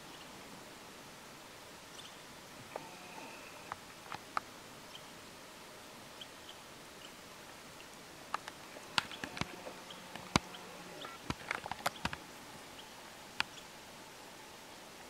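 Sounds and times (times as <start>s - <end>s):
faint steady hiss: 0.0s - 15.0s
small sharp clicks and knocks: 8.3s - 12.2s.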